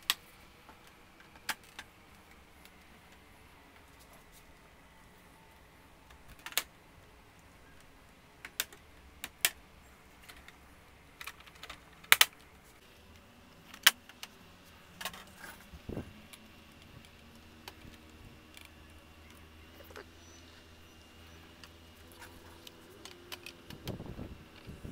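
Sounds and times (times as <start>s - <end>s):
plastic clips snapping loose: 11.2s - 12.5s.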